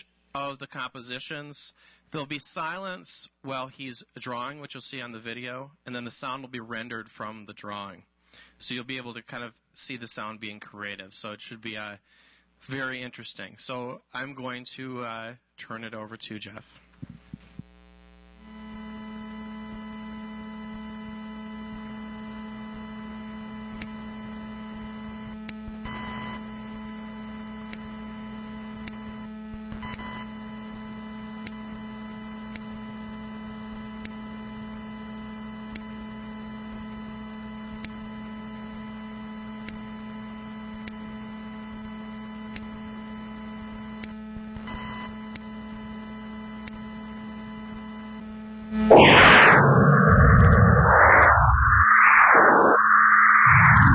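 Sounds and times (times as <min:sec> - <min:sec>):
electrical hum: 0:48.7 - 0:53.9
electrical crackles: 0:48.8 - 0:53.9.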